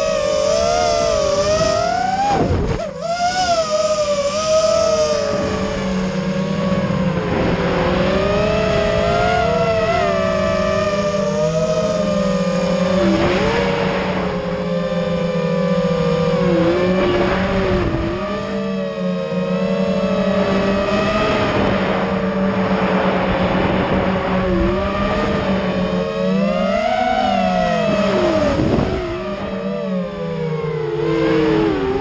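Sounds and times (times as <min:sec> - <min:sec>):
drone motors whining: 0:00.0 - 0:32.0.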